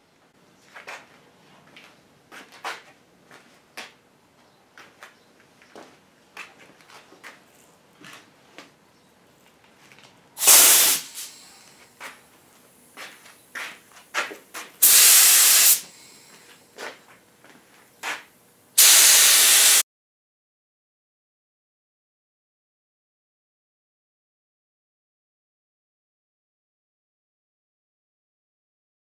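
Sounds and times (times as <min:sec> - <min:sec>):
spray can hissing: 0:10.4 - 0:11.5, 0:14.8 - 0:15.9, 0:18.8 - 0:19.8.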